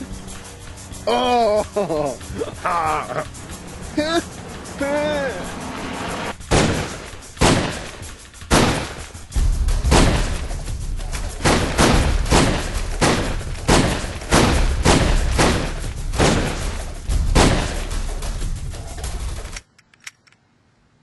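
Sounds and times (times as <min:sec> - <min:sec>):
deep rumble: 0:00.0 - 0:07.5.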